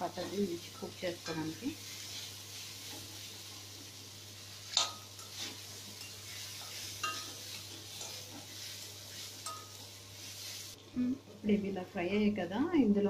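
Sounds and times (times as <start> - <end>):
frying sizzle: 0.0 - 13.0
metal spatula scraping pan: 4.8 - 9.8.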